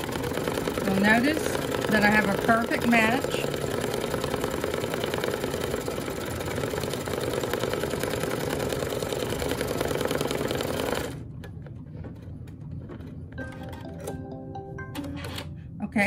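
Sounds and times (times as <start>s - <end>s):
embroidery machine stitching: 0.0s - 11.2s.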